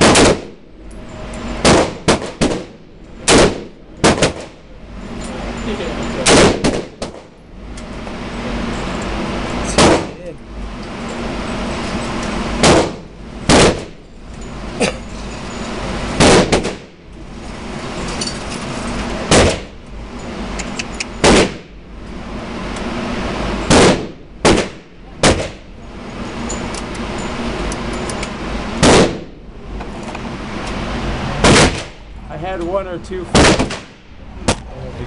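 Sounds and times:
gunshots: 0.0 - 0.6, 1.6 - 4.6, 6.2 - 7.3, 9.7 - 10.2, 12.6 - 14.0, 16.2 - 16.9, 19.3 - 19.7, 21.2 - 21.7, 23.6 - 25.7, 28.8 - 29.3, 31.4 - 32.0, 33.3 - 34.6
motorized target carrier whirring: 0.0 - 33.0.

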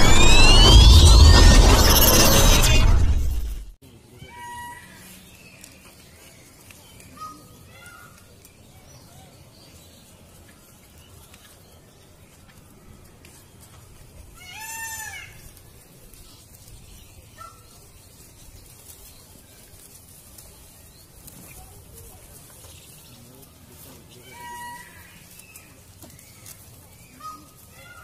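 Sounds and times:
peacock call: 4.2 - 5.1, 24.2 - 25.2.

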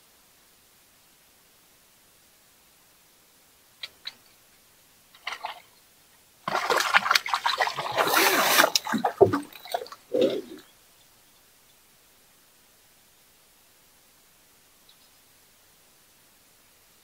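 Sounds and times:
fish splashing in water: 6.5 - 10.6.

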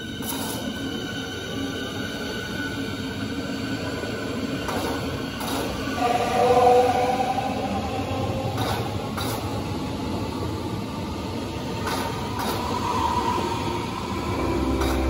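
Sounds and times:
train wheels rumbling on rail: 0.0 - 15.0
clacks over rail joints: 8.6 - 9.5, 14.8 - 15.0.

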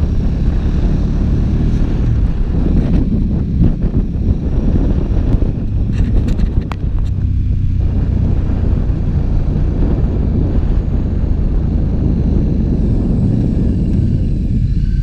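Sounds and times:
motorcycle engine running: 0.0 - 15.0
wind on microphone: 0.0 - 15.0.

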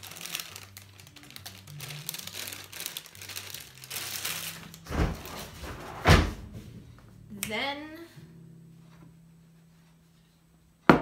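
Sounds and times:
plastic bag crinkling: 0.0 - 5.6.

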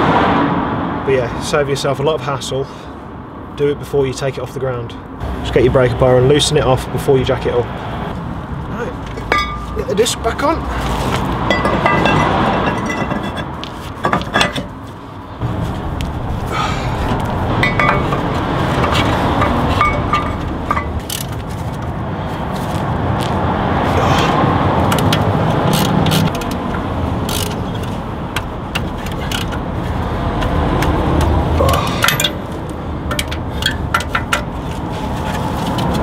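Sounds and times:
steady rumbling background: 0.0 - 36.0
metallic clinks and scrapes: 10.9 - 14.9, 17.6 - 21.8, 31.7 - 35.9.

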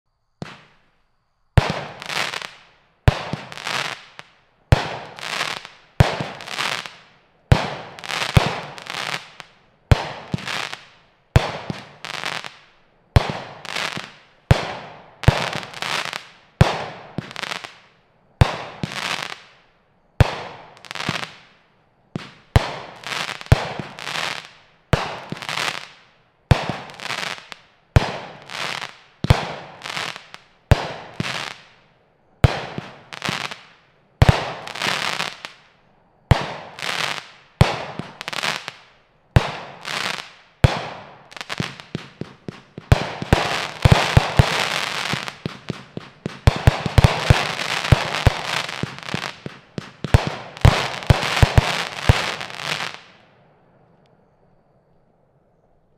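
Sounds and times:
firework launch bangs: 0.4 - 0.8
firework bursting in air: 0.4 - 0.9, 39.4 - 53.2.

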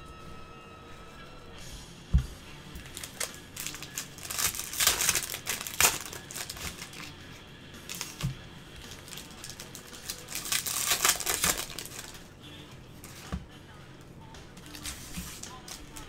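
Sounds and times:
plastic wrapper crinkling: 2.8 - 7.2, 7.9 - 12.2, 14.6 - 16.0.

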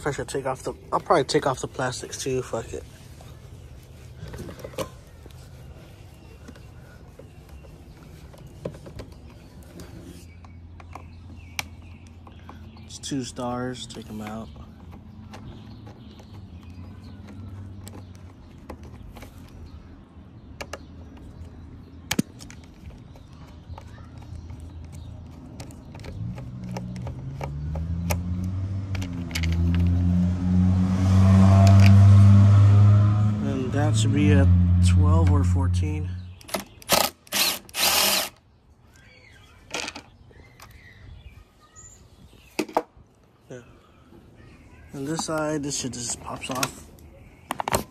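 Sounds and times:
cordless drill burst: 36.5 - 38.4.

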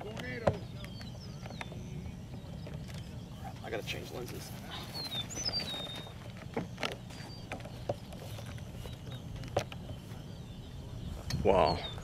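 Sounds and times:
low wind rumble: 0.0 - 12.0
bird whistled call: 4.6 - 6.3, 7.1 - 12.0.

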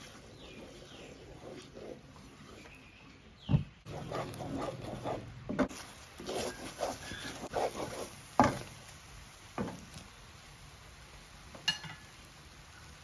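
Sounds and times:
wooden spatula scraping wok: 0.0 - 3.2, 3.8 - 8.9.

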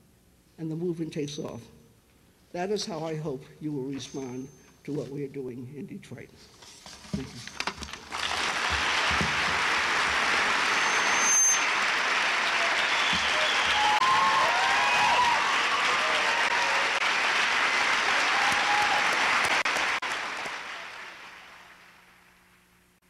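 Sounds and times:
audience applauding: 8.0 - 22.4.

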